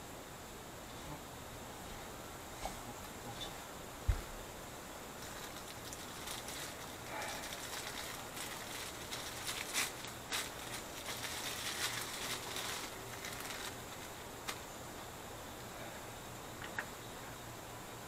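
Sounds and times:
plastic bag crinkling: 0:05.2 - 0:14.7.

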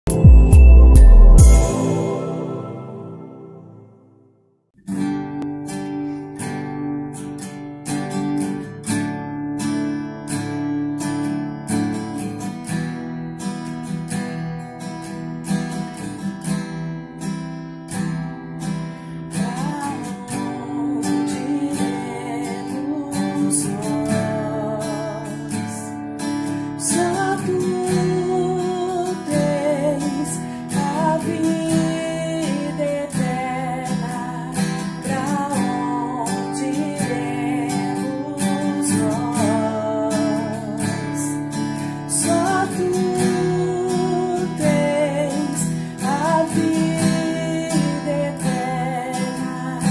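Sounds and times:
strummed acoustic guitar: 0:00.1 - 0:04.2, 0:04.8 - 0:49.9
woman singing with vibrato: 0:19.4 - 0:25.9, 0:26.8 - 0:41.3, 0:42.1 - 0:49.9.

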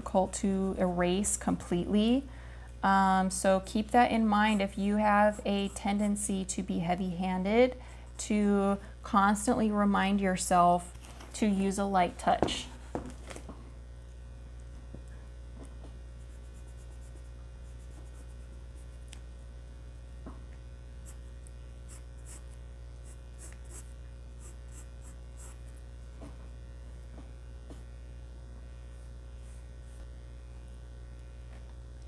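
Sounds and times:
pencil scratching on paper: 0:04.5 - 0:06.2, 0:16.2 - 0:19.0, 0:21.9 - 0:25.6.

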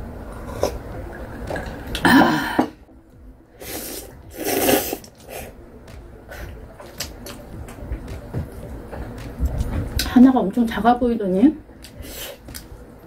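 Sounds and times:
loud slurp of noodles: 0:03.6 - 0:05.5.

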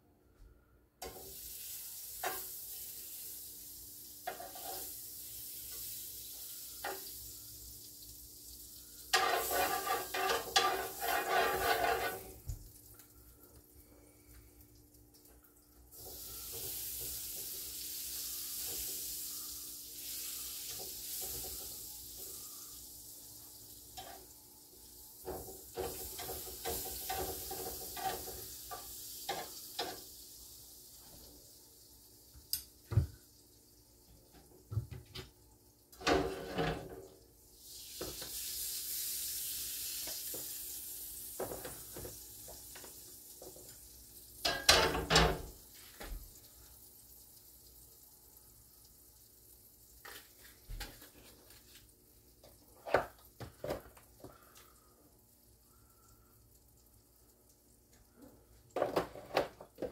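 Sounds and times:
food sizzling in a frying pan: 0:01.0 - 0:13.8, 0:15.9 - 0:34.7, 0:35.7 - 0:59.9
utensils scraping a pan: 0:04.3 - 0:04.9, 0:09.1 - 0:12.4, 0:24.0 - 0:24.2, 0:25.8 - 0:28.5, 0:36.0 - 0:36.9.

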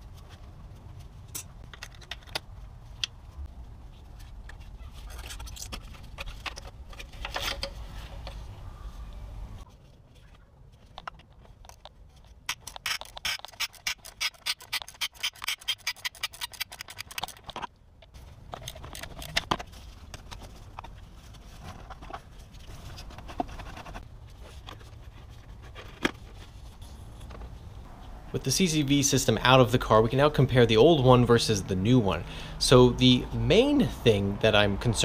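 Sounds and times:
knocks and handling noises: 0:00.0 - 0:08.6, 0:09.7 - 0:28.2.

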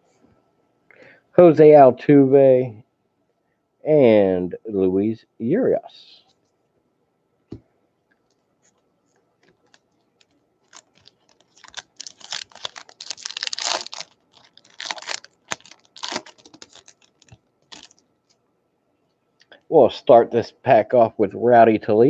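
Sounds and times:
wrapper crinkling: 0:09.4 - 0:18.4
card pack wrapper tearing: 0:09.5 - 0:18.0.

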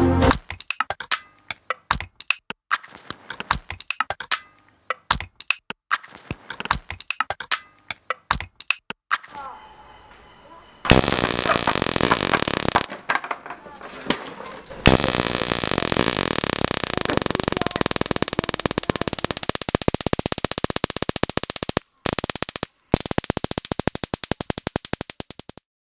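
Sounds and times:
harsh synthesizer buzz: 0:10.9 - 0:12.9, 0:14.9 - 0:21.5.

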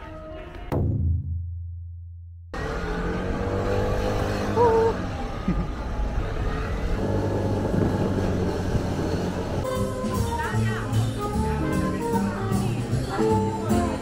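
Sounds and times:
road noise: 0:02.5 - 0:14.0
wind noise: 0:06.0 - 0:10.6.

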